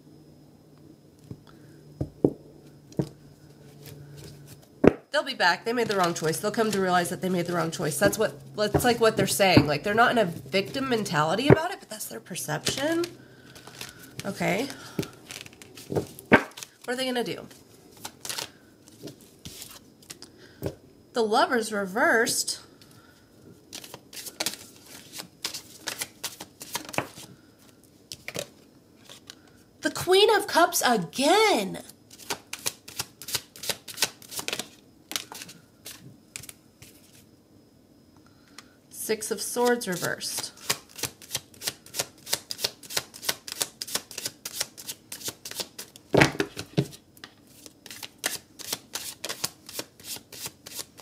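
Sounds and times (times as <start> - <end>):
cards being shuffled: 5.8 - 6.9, 12.6 - 20.2, 23.7 - 27.3, 32.1 - 37.2, 39.6 - 51.0.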